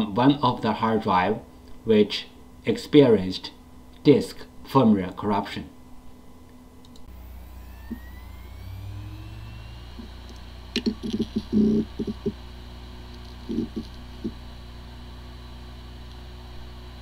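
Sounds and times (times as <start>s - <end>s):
hard drive spinning: 6.4s - 17.0s
hard drive clicks and knocks: 10.8s - 12.4s, 13.1s - 14.4s.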